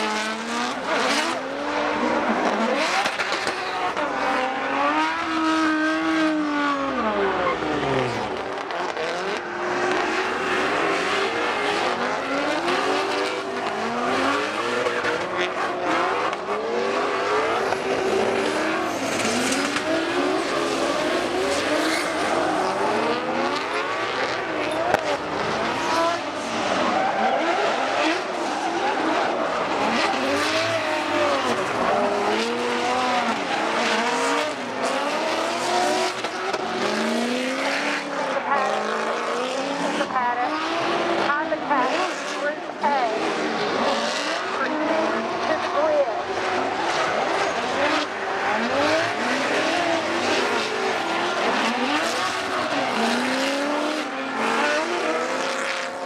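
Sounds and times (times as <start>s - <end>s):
car engines revving: 0.0s - 56.0s
tyre squeal: 18.4s - 22.8s.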